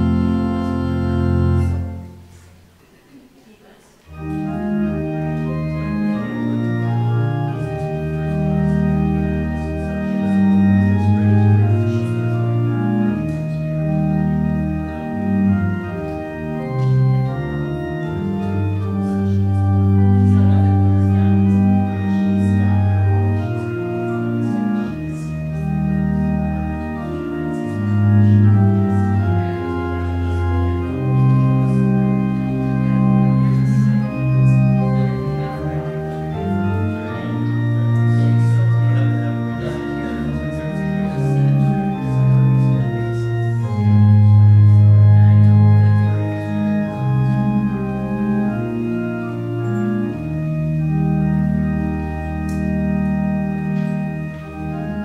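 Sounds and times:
organ playing slow chords: 0.0 - 2.8, 4.1 - 55.0.

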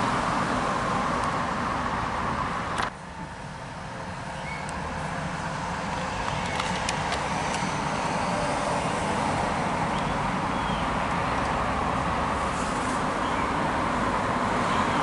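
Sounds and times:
diesel locomotive engine: 0.0 - 15.0
train wheels rumbling on rails: 4.2 - 14.8.

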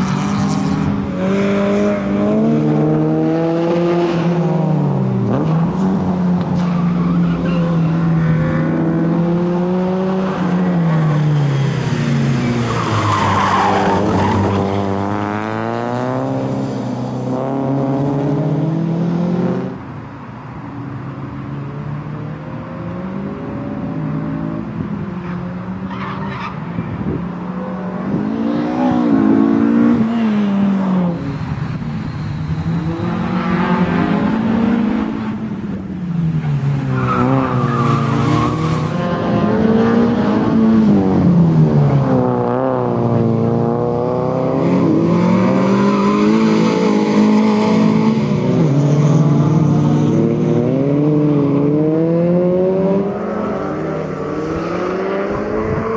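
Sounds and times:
tyres squealing on tarmac: 25.2 - 26.8, 36.4 - 39.0.

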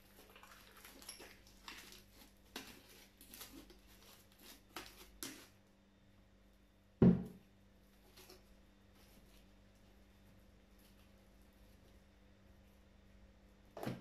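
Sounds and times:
slime squelching and tearing: 0.0 - 5.6.

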